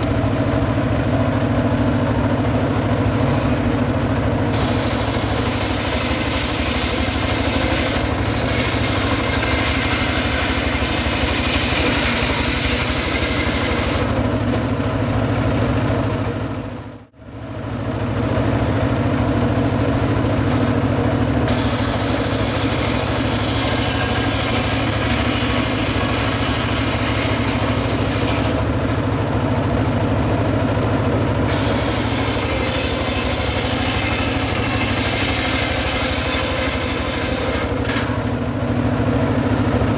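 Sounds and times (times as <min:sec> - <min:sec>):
sawmill engine running: 0:00.0 - 0:39.9
circular saw blade ripping logs: 0:04.5 - 0:14.2, 0:21.5 - 0:28.6, 0:31.5 - 0:38.3.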